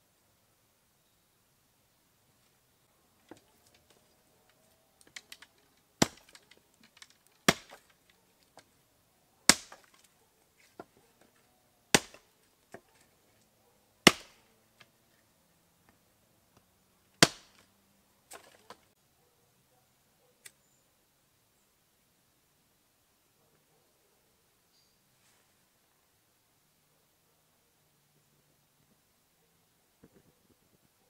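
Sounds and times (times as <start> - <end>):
sticks clicking: 3.3 - 8.7
hatchet chopping wood: 5.0 - 8.7, 9.5 - 10.1, 11.9 - 12.9, 14.0 - 14.4, 17.2 - 17.6.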